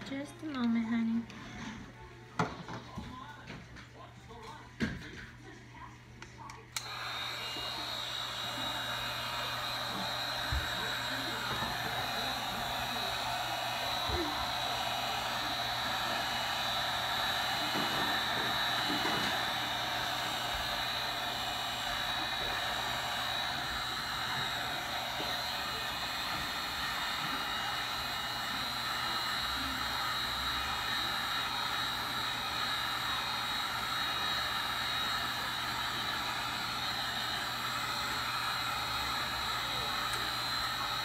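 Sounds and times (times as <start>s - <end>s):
high fan whine: 6.7s - 29.2s
heat gun blowing air: 6.8s - 41.0s.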